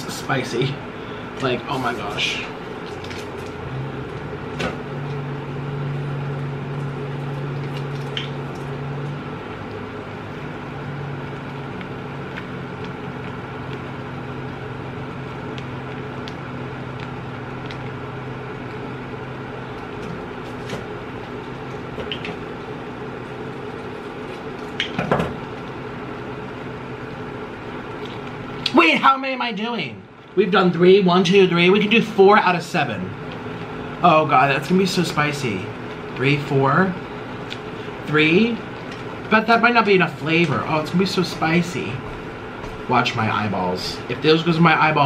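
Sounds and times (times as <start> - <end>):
low electrical hum: 0.0 - 45.0
plastic sachets squished and crinkled: 1.8 - 4.3.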